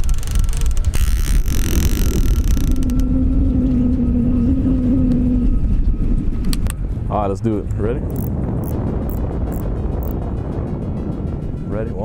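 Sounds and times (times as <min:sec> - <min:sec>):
fishing reel whirring: 0:00.0 - 0:03.1, 0:08.1 - 0:10.2
wind rumble on microphone: 0:00.0 - 0:12.0.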